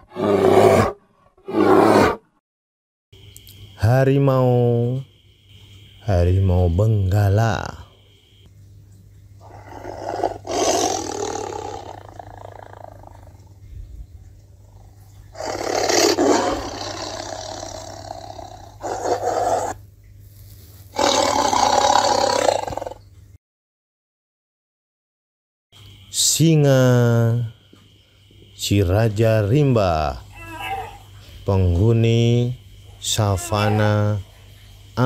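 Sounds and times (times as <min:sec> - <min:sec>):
tiger roaring: 0:00.0 - 0:02.3, 0:09.4 - 0:13.4, 0:14.7 - 0:19.8, 0:20.9 - 0:23.0, 0:30.3 - 0:31.1, 0:33.1 - 0:34.2
faint low hum: 0:03.2 - 0:21.0.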